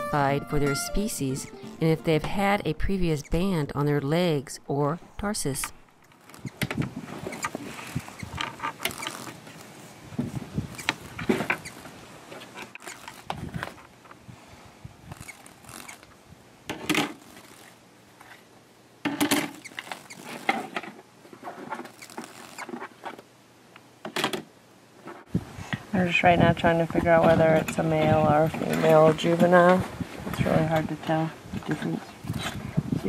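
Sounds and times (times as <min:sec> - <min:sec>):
mesh bag rustling and scraping: 0:06.1 - 0:13.9, 0:14.5 - 0:16.2, 0:16.8 - 0:18.5, 0:19.4 - 0:23.2.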